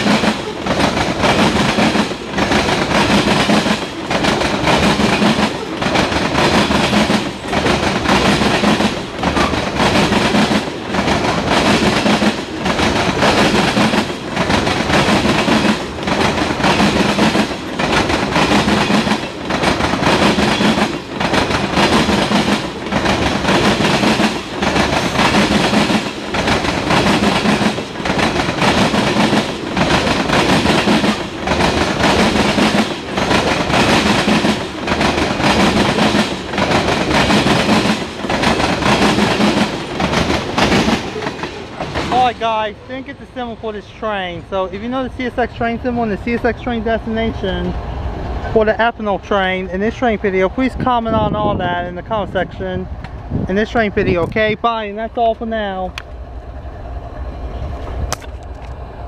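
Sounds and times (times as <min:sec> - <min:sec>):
wheels clicking over rail joints: 0:00.0 - 0:45.0
freight train rolling past: 0:00.0 - 0:59.0.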